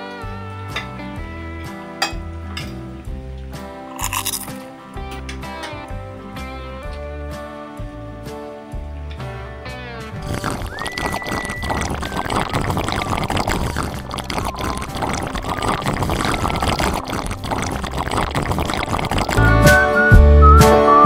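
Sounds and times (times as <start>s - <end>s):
short whistle-like tone: 10.6s - 12.2s, 19.5s - 21.0s.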